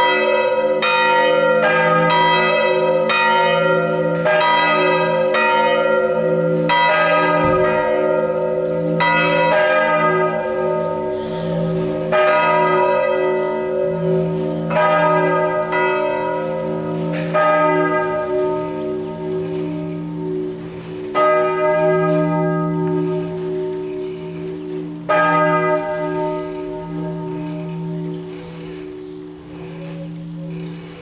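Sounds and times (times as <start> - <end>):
church bells ringing: 0.0 - 31.0.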